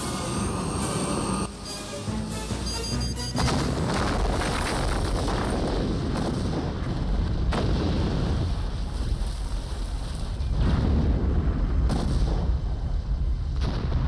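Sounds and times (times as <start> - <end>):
rumbling and crackling blasts: 3.4 - 14.0
large explosion: 3.5 - 14.0.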